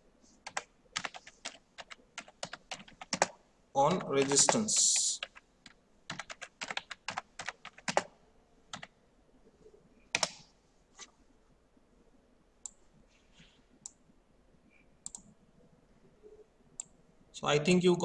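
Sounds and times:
typing on keyboard: 0:00.4 - 0:08.1, 0:08.7 - 0:08.9, 0:10.1 - 0:10.4.

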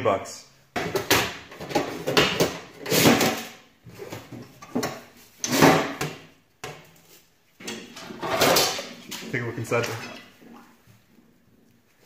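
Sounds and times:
metal drawers clattering and scraping: 0:00.8 - 0:06.2, 0:07.6 - 0:10.6.

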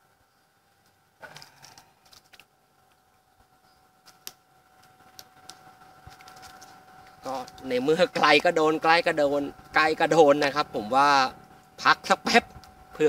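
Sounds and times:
faint steady whine: 0:00.0 - 0:13.0.

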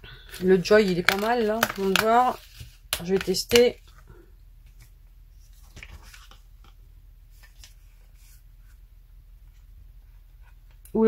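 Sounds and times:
low steady hum: 0:00.0 - 0:11.0
paper rustling and tapping: 0:00.3 - 0:04.0, 0:05.6 - 0:06.8.

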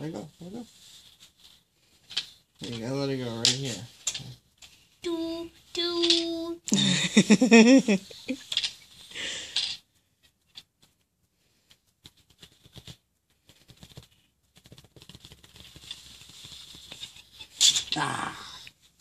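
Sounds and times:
toy train clicks and rustles: 0:01.0 - 0:06.6, 0:08.2 - 0:11.0, 0:13.6 - 0:18.8.

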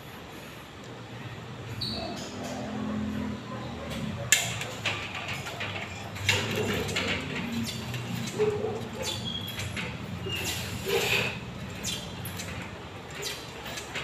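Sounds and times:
machine squeaking and scraping: 0:01.7 - 0:03.3, 0:04.0 - 0:14.0
weight stack clanking: 0:04.3 - 0:14.0.

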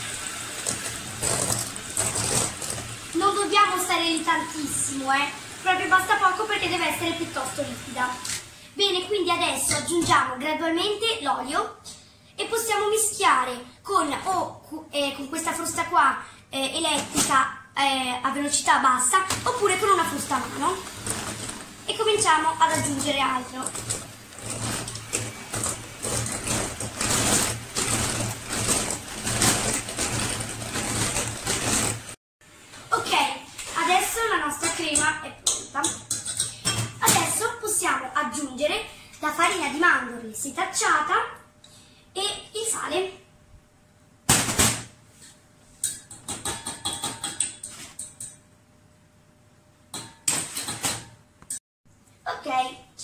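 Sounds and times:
electric hand mixer whisking: 0:00.0 - 0:08.2, 0:19.4 - 0:32.2
beaters knocking against metal bowl: 0:45.8 - 0:48.4.

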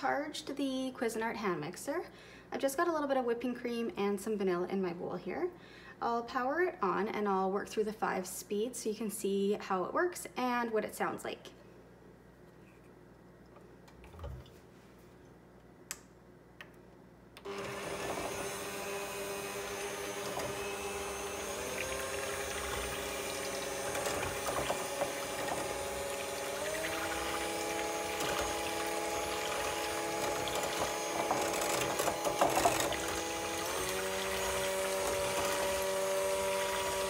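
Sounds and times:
hand mixer motor humming: 0:17.4 - 0:37.0
mixer clicks: 0:17.4 - 0:37.0.

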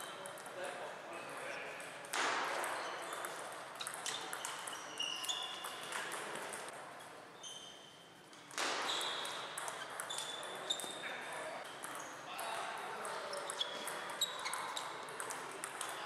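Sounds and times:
sneaker squeaks: 0:02.5 - 0:06.4, 0:07.0 - 0:12.4, 0:13.0 - 0:15.2
table tennis ball clicking: 0:02.5 - 0:06.7, 0:13.0 - 0:16.0.

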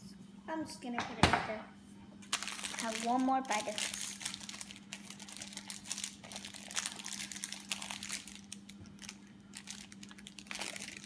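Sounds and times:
steady low hum: 0:00.0 - 0:11.0
plastic wrapper crinkling: 0:02.2 - 0:11.0.

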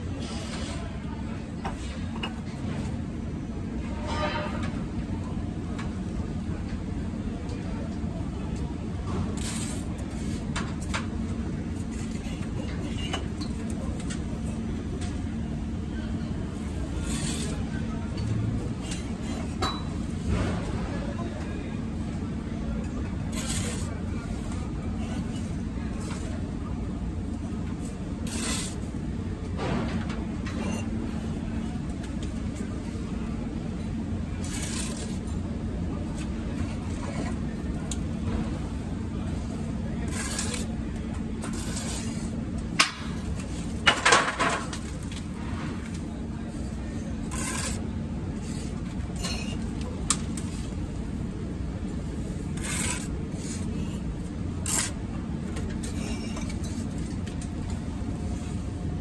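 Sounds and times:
trowel scraping mortar: 0:17.0 - 0:17.6, 0:23.3 - 0:23.9, 0:28.2 - 0:28.8, 0:34.4 - 0:35.2, 0:40.1 - 0:40.7, 0:41.4 - 0:42.3, 0:47.3 - 0:49.6, 0:52.6 - 0:53.9, 0:54.6 - 0:55.0.

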